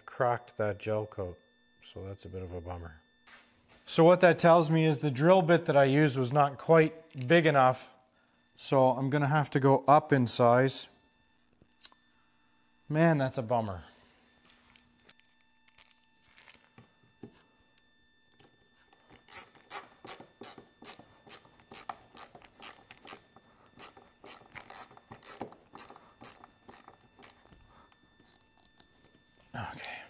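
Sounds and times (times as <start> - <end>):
ratcheting screwdriver clicks: 23.8 - 27.5.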